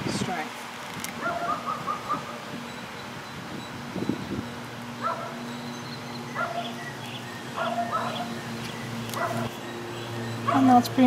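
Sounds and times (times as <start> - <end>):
dog whining and yipping: 1.2 - 2.4, 5.0 - 6.9, 7.5 - 8.4, 9.2 - 9.5.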